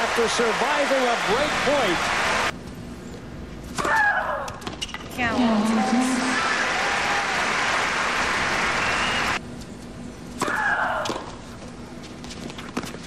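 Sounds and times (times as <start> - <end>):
crowd applauding: 0.0 - 2.5, 6.0 - 9.4.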